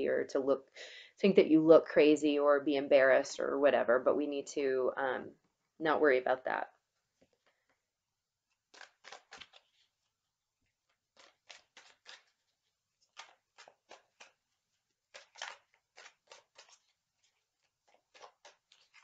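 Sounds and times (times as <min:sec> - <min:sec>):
cards being shuffled: 0:08.5 - 0:10.1, 0:10.8 - 0:19.0.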